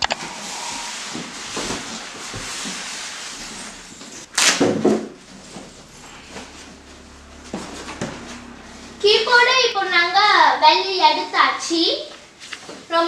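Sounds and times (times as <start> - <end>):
plastic and cardboard rustling: 0.9 - 8.5.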